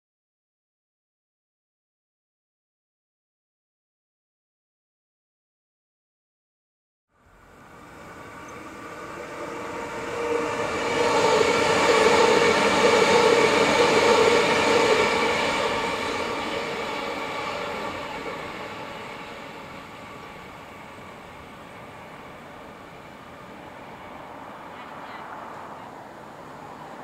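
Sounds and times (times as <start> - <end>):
electric train passing: 7.2 - 27.0
train whine: 7.2 - 27.0
wheels rumbling on rail: 7.2 - 27.0.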